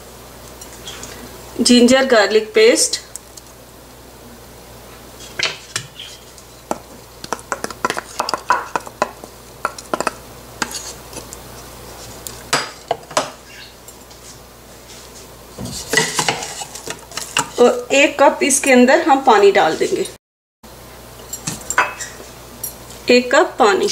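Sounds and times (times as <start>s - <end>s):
wooden spoon scraping a bowl: 5.2s - 12.4s, 14.0s - 17.8s
spoon knocking on pot: 6.7s - 10.8s.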